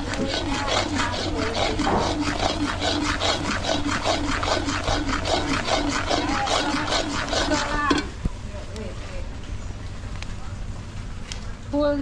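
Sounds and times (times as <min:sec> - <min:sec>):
spoon scraping a pot: 0:00.0 - 0:08.2.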